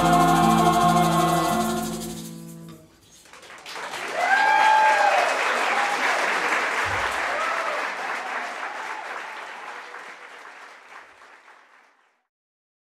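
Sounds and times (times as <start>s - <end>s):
audience applauding: 3.2s - 12.2s.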